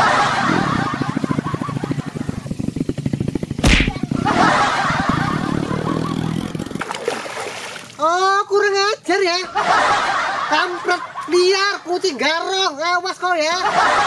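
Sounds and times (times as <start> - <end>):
small motorcycle engine running: 0.0 - 8.0
hard thud: 3.6 - 4.1
water splashing: 4.6 - 8.1.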